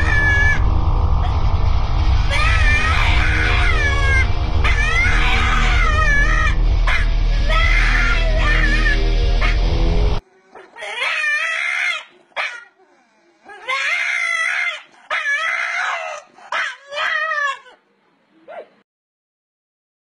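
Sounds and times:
dog howling cries: 0.0 - 0.6, 2.2 - 9.7, 10.5 - 12.8, 13.5 - 17.8
music: 0.6 - 10.2
dog yipping: 10.6 - 12.8, 13.5 - 17.8, 18.5 - 18.8.

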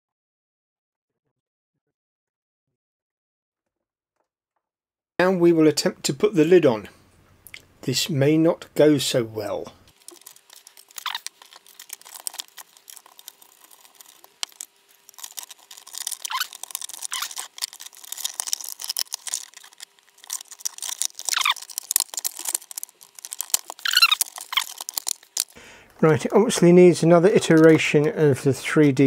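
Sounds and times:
plastic clicks and rubbing: 9.9 - 26.6, 27.3 - 28.2
short squeaks falling in pitch: 23.8 - 24.7.

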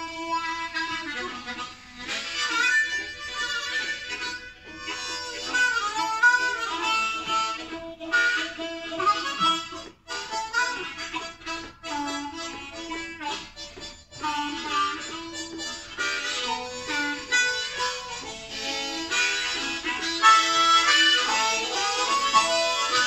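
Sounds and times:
harmonicas playing blues: 0.0 - 23.0.

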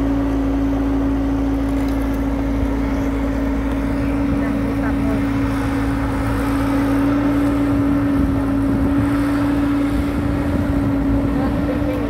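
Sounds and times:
excavator diesel engine droning: 0.0 - 12.0.

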